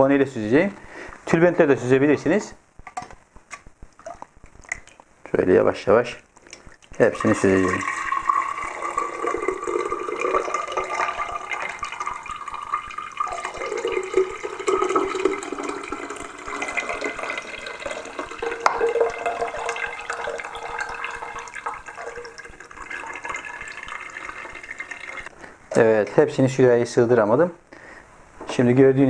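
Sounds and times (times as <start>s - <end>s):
liquid trickling into a jug: 6.8s - 25.3s.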